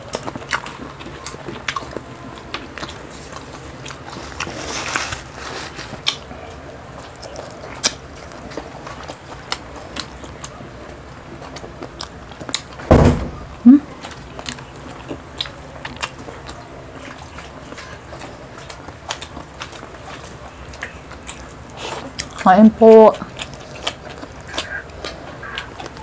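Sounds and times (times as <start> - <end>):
people chewing food: 0.0 - 26.0.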